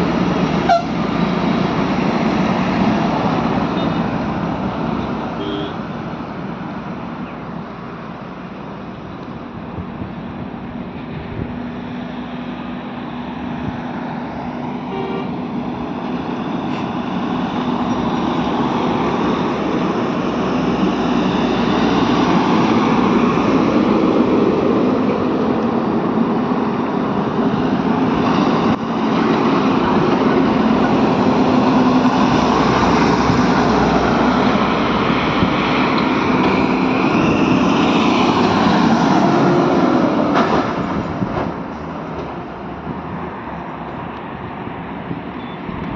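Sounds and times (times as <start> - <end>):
highway traffic passing: 0.0 - 45.9.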